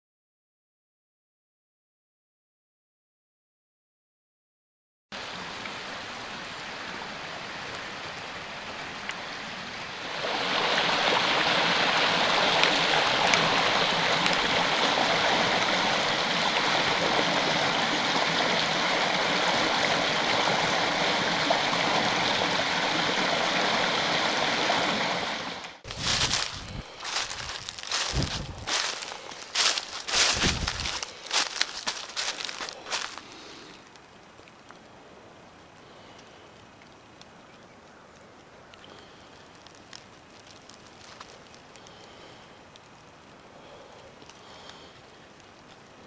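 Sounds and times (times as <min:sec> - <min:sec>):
water rushing over rocks: 0:05.2 - 0:33.2
footsteps crunching in dry leaves: 0:25.8 - 0:33.6, 0:39.7 - 0:41.6.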